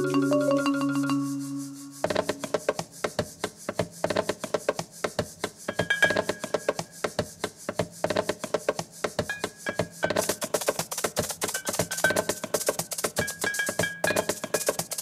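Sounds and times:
wooden maracas shaken: 0:00.0 - 0:03.7, 0:08.7 - 0:15.0.

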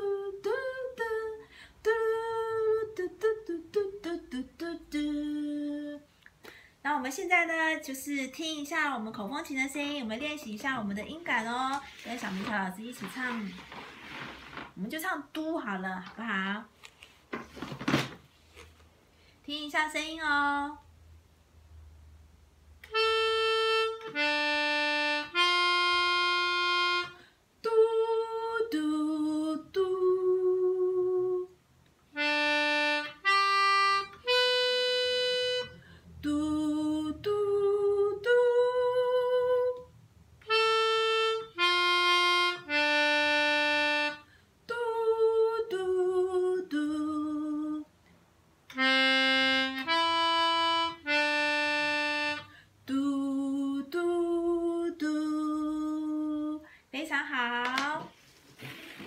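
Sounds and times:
woman singing doo: 0:00.0 - 0:06.1, 0:22.8 - 0:31.6, 0:32.2 - 0:47.9, 0:48.7 - 0:58.1
melodica phrases: 0:22.8 - 0:27.2, 0:32.2 - 0:35.8, 0:40.4 - 0:44.3, 0:48.7 - 0:52.5.

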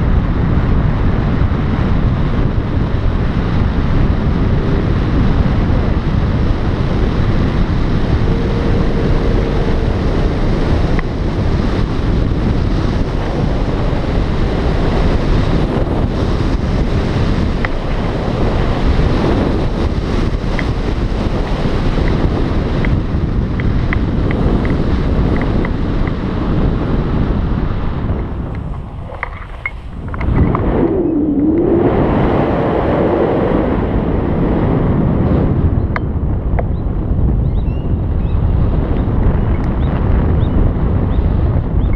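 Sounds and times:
wind buffeting microphone: 0:00.0 - 0:41.9
low steady tone: 0:05.7 - 0:14.4.

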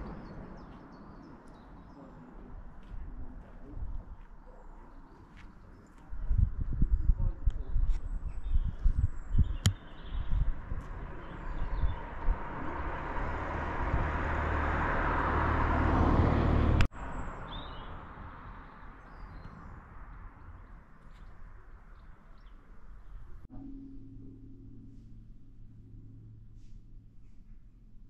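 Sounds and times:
bird chirps: 0:08.0 - 0:10.5, 0:17.0 - 0:19.8
passing vehicle: 0:09.7 - 0:21.9.

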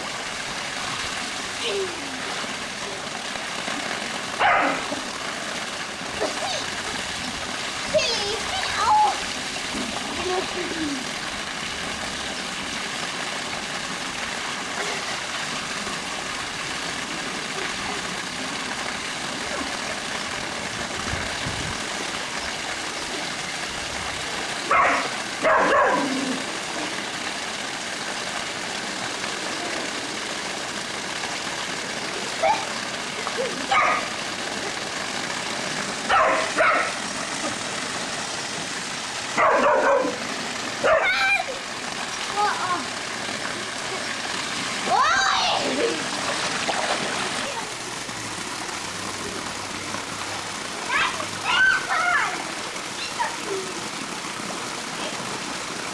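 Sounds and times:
waterfall pouring into pool: 0:00.0 - 0:55.9
dog barking: 0:04.4 - 0:04.9, 0:24.7 - 0:26.2, 0:32.4 - 0:32.7, 0:33.7 - 0:34.1, 0:36.1 - 0:37.0, 0:39.4 - 0:40.2, 0:40.8 - 0:41.2.

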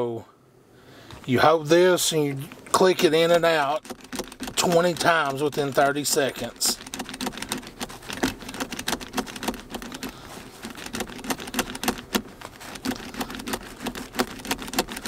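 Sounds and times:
seat belt buckle clicking: 0:02.5 - 0:15.0.

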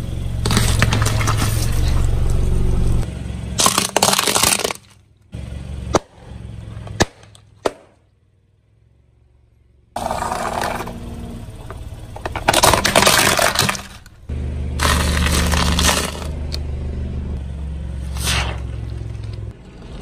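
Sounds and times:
low hum: 0:00.0 - 0:20.0
car tyre crushing objects: 0:00.2 - 0:08.2, 0:10.0 - 0:16.6
loud crunching: 0:00.4 - 0:05.1, 0:12.2 - 0:16.7.

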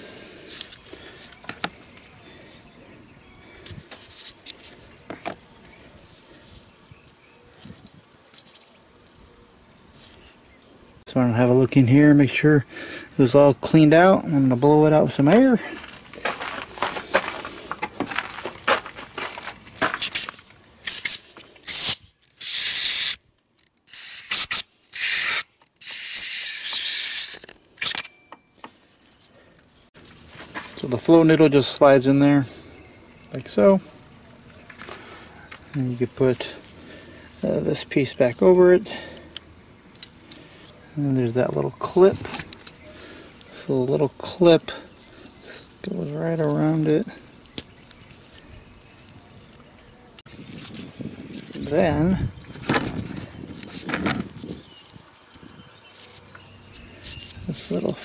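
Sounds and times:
faint background noise: 0:00.0 - 0:58.0
compressed air blow gun hissing: 0:20.0 - 0:23.2, 0:23.9 - 0:27.4.

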